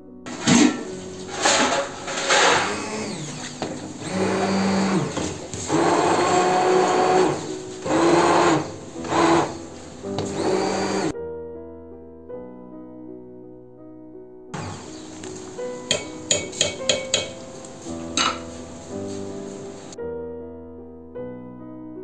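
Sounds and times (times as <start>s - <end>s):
hand blender motor running: 2.1s - 11.1s, 14.6s - 15.1s.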